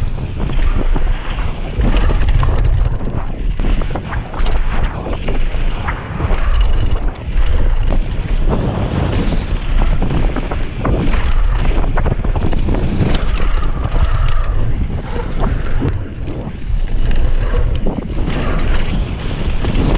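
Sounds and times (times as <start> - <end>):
bike rattling clicks: 0.0 - 19.9
wind buffeting microphone: 0.0 - 19.9.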